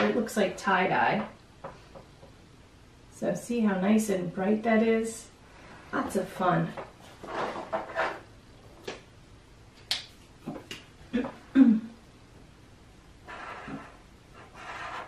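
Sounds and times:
marker tip scratching on paper: 0:13.3 - 0:15.0.

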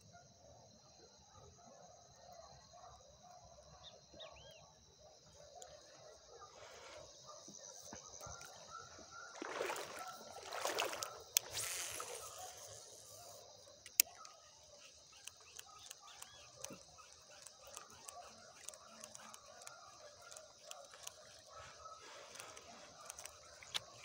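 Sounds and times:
bird chirps: 0:03.8 - 0:04.8, 0:12.1 - 0:24.0
water sloshing and handling noise: 0:07.9 - 0:12.2
high insect drone: 0:09.3 - 0:24.0.

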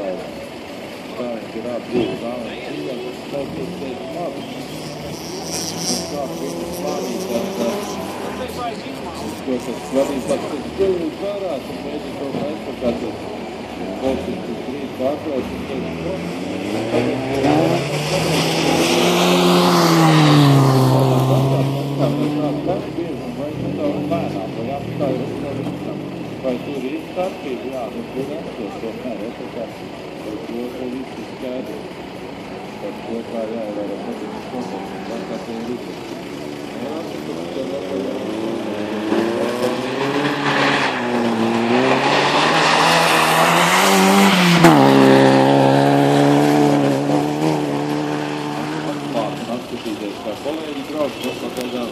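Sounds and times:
road noise hiss: 0:00.0 - 0:51.9
car engine passing at speed: 0:01.1 - 0:29.7, 0:32.6 - 0:51.9.

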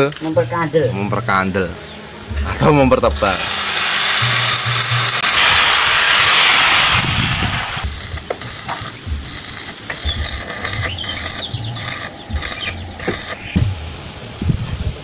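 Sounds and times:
welding arc crackling: 0:03.0 - 0:13.8.

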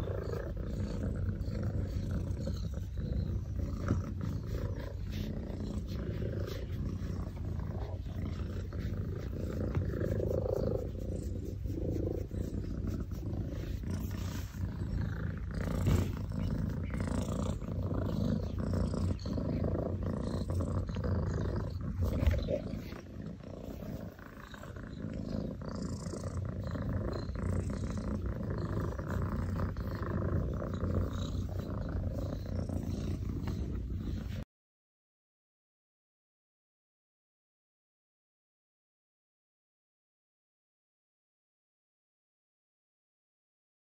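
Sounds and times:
cat purring: 0:00.0 - 0:34.5.

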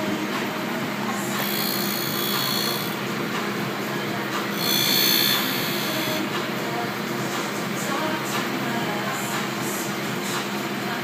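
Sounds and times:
grinder motor hum: 0:00.0 - 0:06.7
high-pitched grinding hiss: 0:01.0 - 0:03.3, 0:04.4 - 0:06.7.

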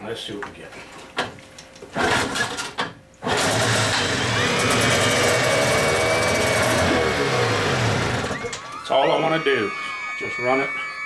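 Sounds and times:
outboard motor starting and running: 0:02.0 - 0:09.0.

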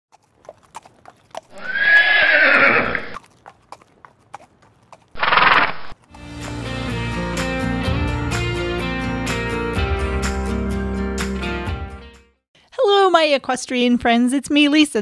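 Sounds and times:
hoof clip-clops: 0:00.1 - 0:06.2
horse whinnying: 0:01.5 - 0:03.2, 0:05.2 - 0:05.9.

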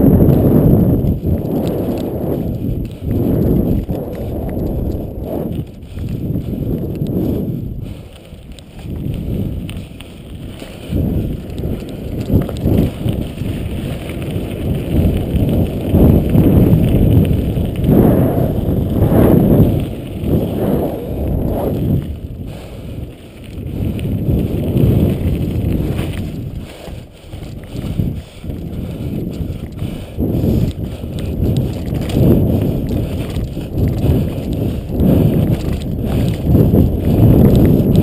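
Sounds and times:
bike tyre rumble on gravel: 0:00.0 - 0:38.0
wind rushing over microphone: 0:00.0 - 0:38.0
bike rattling and knocking: 0:07.8 - 0:17.9, 0:23.4 - 0:38.0.

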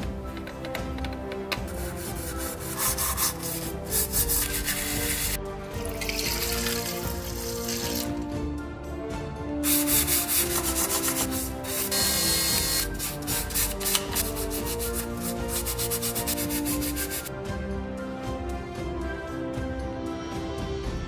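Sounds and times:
background music: 0:00.0 - 0:21.0
hand sanding metal: 0:01.6 - 0:05.4, 0:09.7 - 0:17.3.

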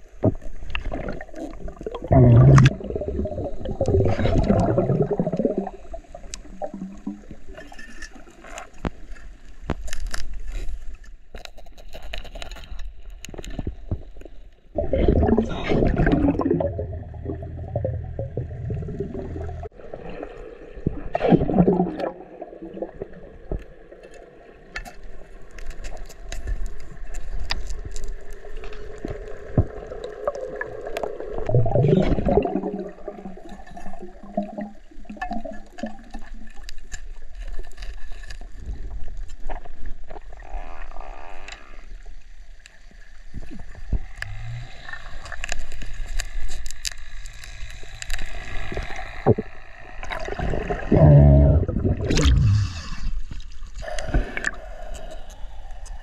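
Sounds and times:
muffled underwater water noise: 0:00.0 - 0:56.0
gurgling and bubbling: 0:00.2 - 0:07.6, 0:14.7 - 0:23.8, 0:29.1 - 0:36.4, 0:48.6 - 0:55.5.

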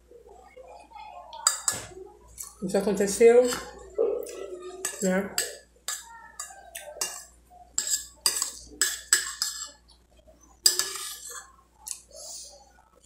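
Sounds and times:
metal spoon clinking on bowl: 0:04.8 - 0:09.8, 0:10.6 - 0:12.0.

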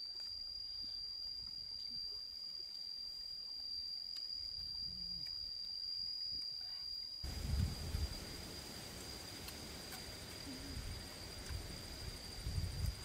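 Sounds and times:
high-pitched insect drone: 0:00.0 - 0:13.0
low wind rumble: 0:07.3 - 0:13.0.

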